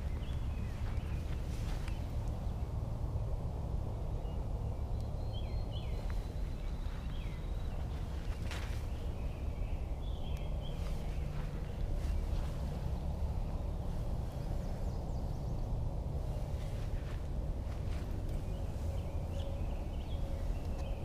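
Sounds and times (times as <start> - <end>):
wind rumble on microphone: 0.0 - 21.0
faint bird chirps: 4.2 - 17.0.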